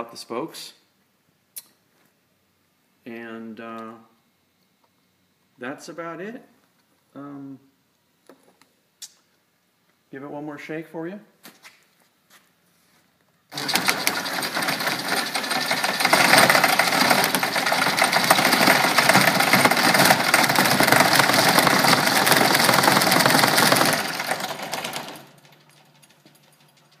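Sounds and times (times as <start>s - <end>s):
fast rattle of wooden table: 13.5s - 27.0s.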